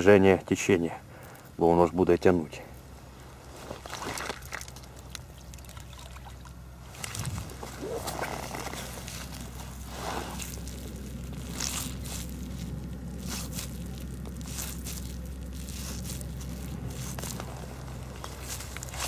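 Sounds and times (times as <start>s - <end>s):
damp bait squishing: 3.4s - 19.0s
plastic bag crinkling: 3.4s - 19.0s.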